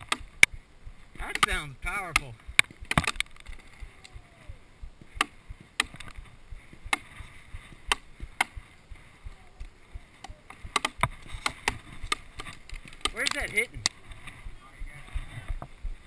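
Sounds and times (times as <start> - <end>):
paintball markers firing: 1.3 - 4.1, 10.2 - 14.0.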